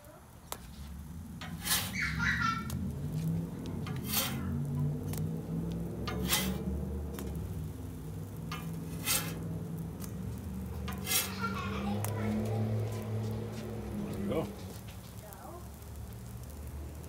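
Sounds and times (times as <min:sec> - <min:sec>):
metal spatula scraping griddle: 0:00.5 - 0:12.2.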